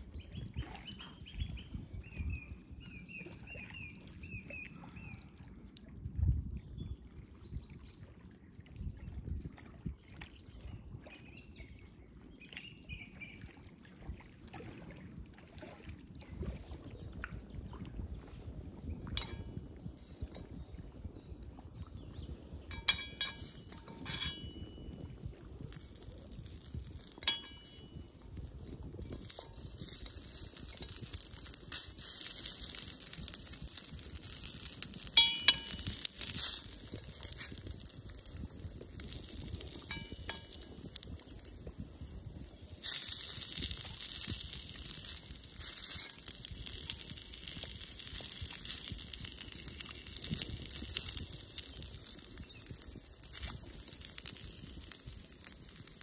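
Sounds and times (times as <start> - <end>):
frying sizzle: 22.7 - 24.4, 25.6 - 56.0
knife clinking against pan: 22.7 - 24.7, 35.2 - 36.3.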